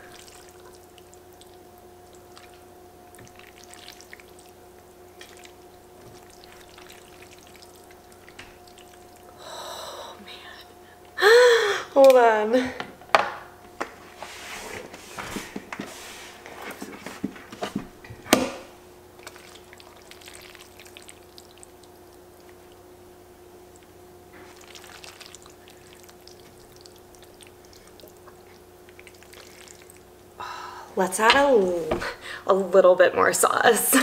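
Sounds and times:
pasta squelching wetly: 0.0 - 9.5, 18.7 - 32.2
faint steady hum: 0.0 - 34.0.

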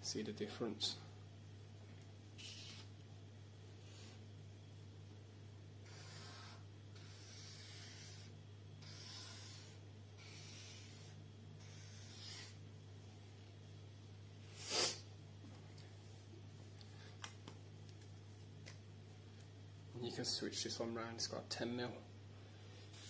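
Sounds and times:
low steady hum: 0.0 - 23.0
felt marker scratching on paper: 2.4 - 2.9, 5.8 - 12.6.

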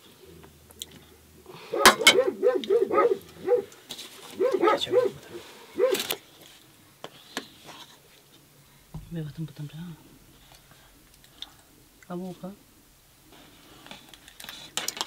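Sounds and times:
dog barking: 1.7 - 6.2.

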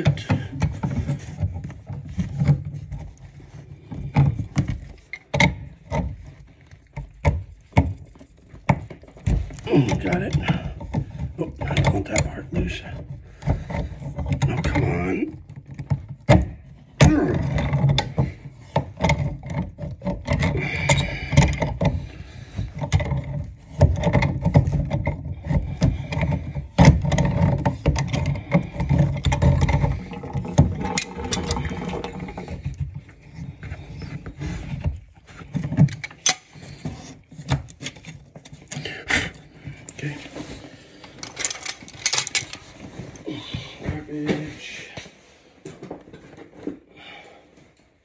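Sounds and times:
metal tools clicking and scraping: 41.0 - 42.8.

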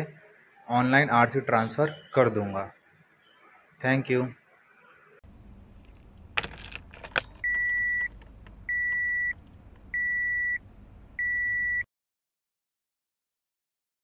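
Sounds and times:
car key jangling in ignition: 5.8 - 9.9
high-pitched car warning beeps: 7.1 - 10.6, 11.2 - 11.9.

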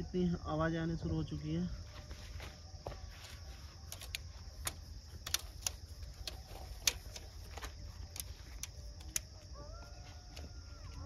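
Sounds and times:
insects chirring: 0.0 - 11.0
sharp clicks and taps: 3.9 - 9.3.

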